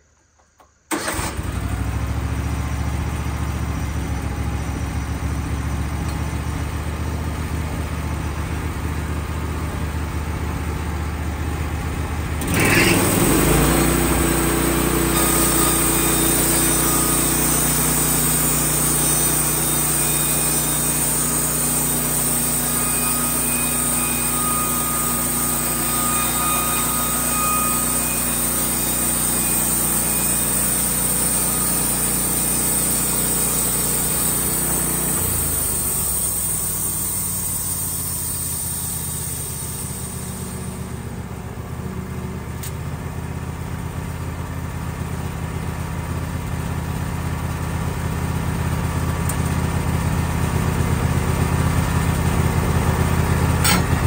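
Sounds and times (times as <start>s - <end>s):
sawmill gasoline engine running: 0.9s - 54.0s
band saw cutting wood: 12.4s - 37.3s, 53.6s - 54.0s.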